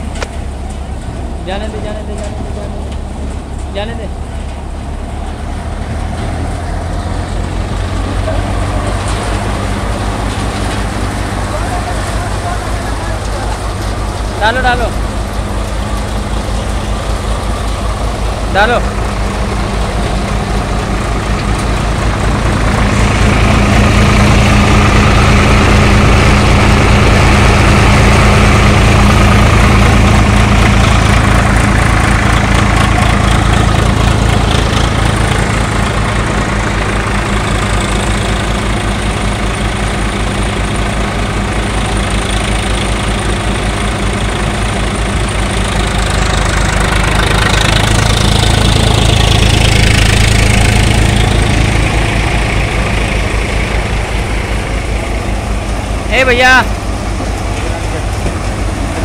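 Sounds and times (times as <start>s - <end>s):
thresher rushing noise: 0.0s - 59.0s
tractor diesel engine: 0.0s - 59.0s.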